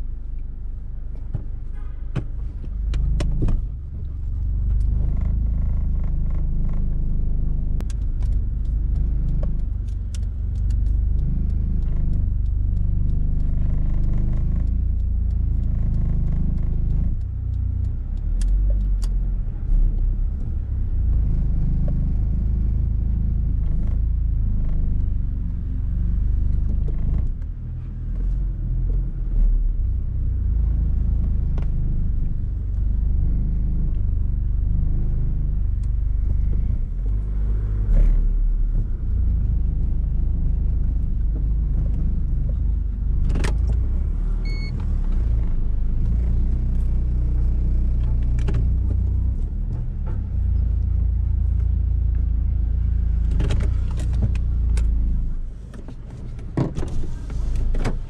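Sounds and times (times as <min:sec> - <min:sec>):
car engine and road rumble: 0:00.0 - 0:58.0
sharp clicks and rattles: 0:02.2 - 0:22.1, 0:34.8 - 0:58.0.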